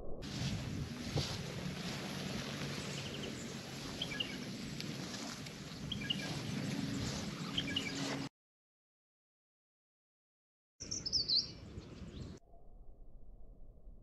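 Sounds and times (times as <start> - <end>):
low hum: 0.0 - 8.2, 12.4 - 14.0
small bird chirping: 2.8 - 4.4, 5.1 - 8.0, 10.8 - 12.4.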